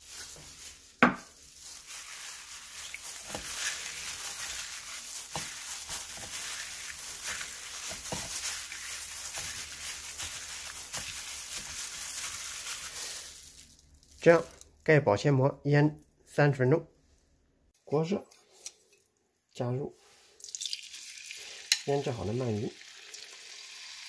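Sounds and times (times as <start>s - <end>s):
plastic glove crinkling: 0.0s - 14.9s.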